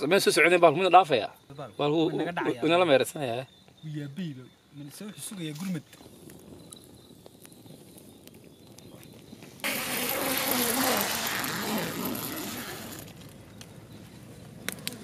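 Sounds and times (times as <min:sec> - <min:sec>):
campfire crackling and popping: 0:03.4 - 0:15.0
hiss of flames: 0:05.2 - 0:13.4.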